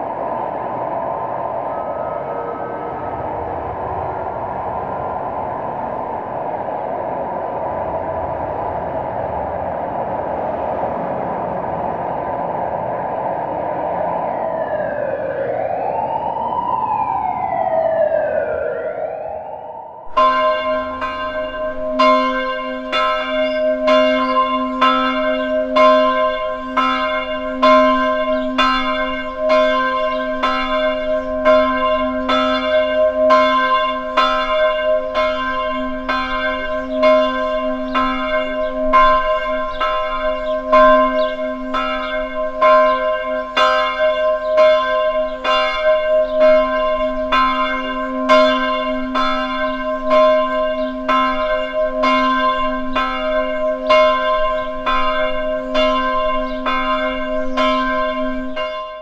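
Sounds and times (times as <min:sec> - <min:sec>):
church bells ringing: 0:20.1 - 0:59.0.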